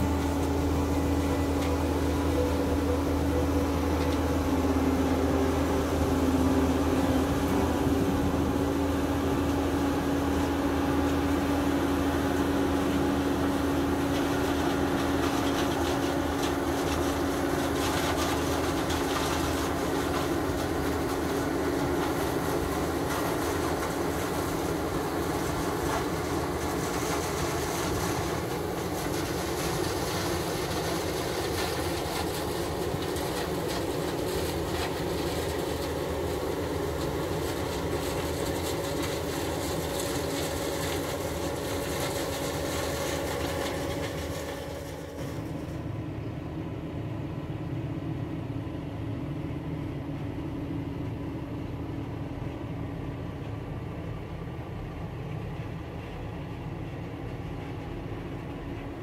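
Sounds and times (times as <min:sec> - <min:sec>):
rough crackle: 0:00.0 - 0:45.8
combine harvester droning: 0:00.0 - 0:59.0.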